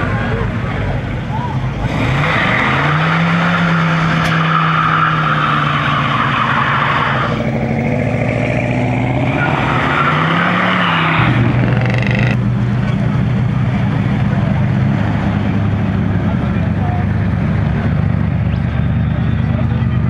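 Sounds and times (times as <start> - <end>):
truck engine revving high: 1.7 - 18.4
tyres squealing on tarmac: 9.4 - 12.4.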